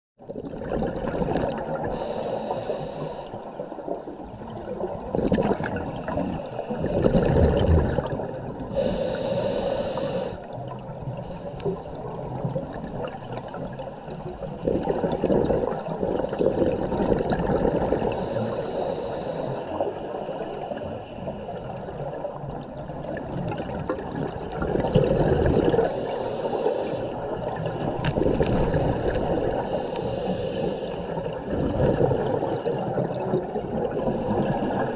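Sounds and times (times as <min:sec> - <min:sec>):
bubbling exhale underwater: 0:00.2 - 0:03.7, 0:04.4 - 0:20.1, 0:21.8 - 0:30.4, 0:31.2 - 0:34.9
regulator hissing inhale: 0:01.8 - 0:03.6, 0:05.9 - 0:07.0, 0:08.7 - 0:10.6, 0:11.2 - 0:12.3, 0:13.3 - 0:14.6, 0:18.0 - 0:21.8, 0:25.8 - 0:27.9, 0:29.5 - 0:31.4.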